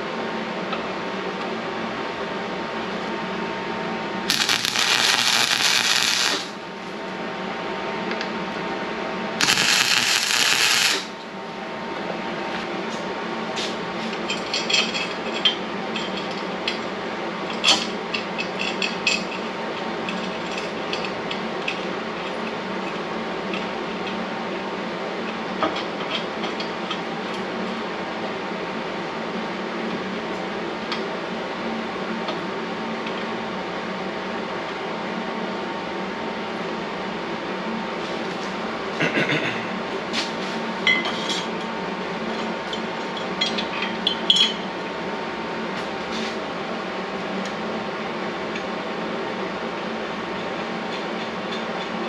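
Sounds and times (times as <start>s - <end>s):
shop hum: 0.0s - 16.8s
welding crackling hiss: 4.3s - 6.6s, 9.4s - 11.2s.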